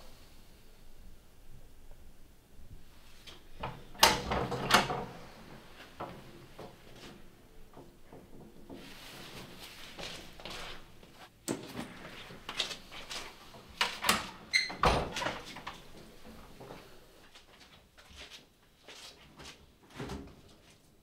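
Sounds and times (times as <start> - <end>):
door squeak: 14.5 - 15.2.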